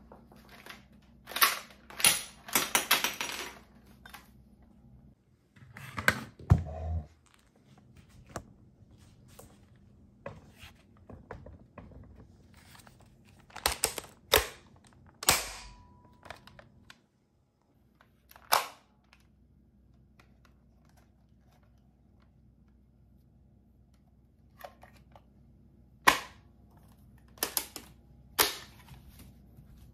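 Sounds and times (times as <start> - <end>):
sharp plastic snaps: 13.5 - 17.0, 27.2 - 28.7.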